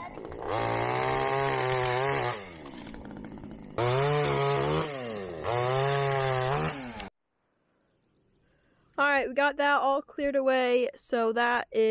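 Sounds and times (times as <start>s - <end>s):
chainsaw idling and revving: 0.0s - 7.1s.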